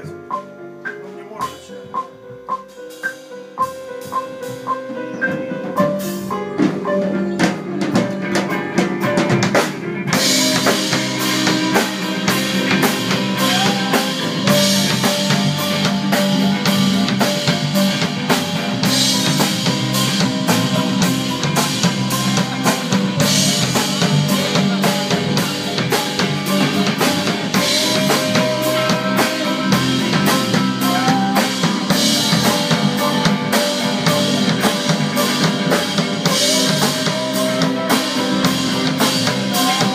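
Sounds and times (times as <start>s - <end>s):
band music: 0.0s - 39.9s
drum kit beat: 0.0s - 39.9s
cymbals: 10.2s - 39.9s.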